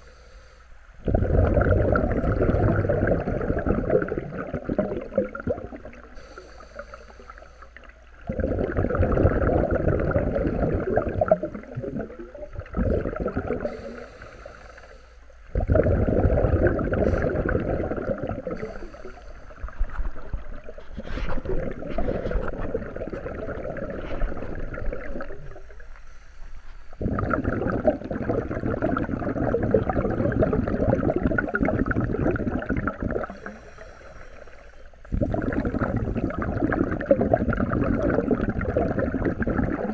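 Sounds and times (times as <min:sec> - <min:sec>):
faint high hiss: 0:00.0 - 0:01.0, 0:05.7 - 0:08.2, 0:13.5 - 0:15.5, 0:17.0 - 0:21.9, 0:22.8 - 0:27.0, 0:33.2 - 0:35.2
underwater regulator bubbles: 0:01.0 - 0:39.9.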